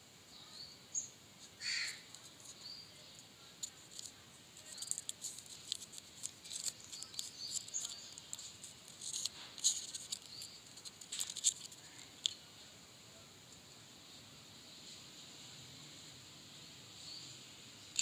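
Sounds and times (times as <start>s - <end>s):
foil wrapper crinkling: 3.6s - 12.3s.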